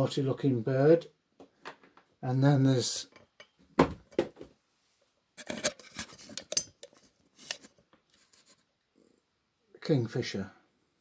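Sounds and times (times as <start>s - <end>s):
sculptures knocking on tabletop: 3.8s - 4.5s
clicks and rubbing: 5.4s - 8.7s.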